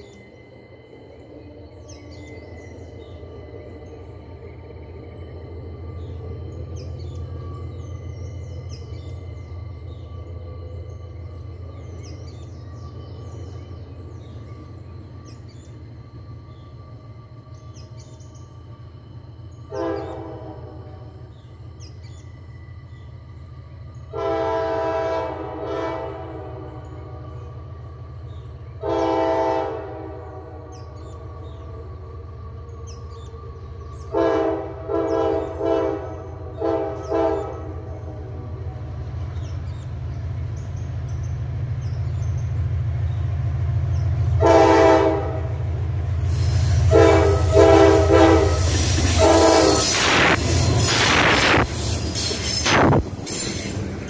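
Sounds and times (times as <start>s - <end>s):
low engine rumble: 0.0s - 54.0s
locomotive air horn blasts: 19.7s - 21.2s, 24.1s - 27.2s, 28.8s - 30.7s, 34.1s - 37.8s, 44.4s - 45.6s, 46.5s - 51.6s.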